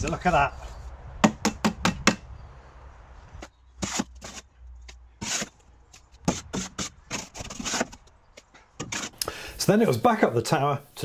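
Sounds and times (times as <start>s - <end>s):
shovel chopping mortar in wheelbarrow: 3.8s - 4.4s, 5.2s - 5.6s, 6.2s - 8.0s, 8.8s - 9.2s.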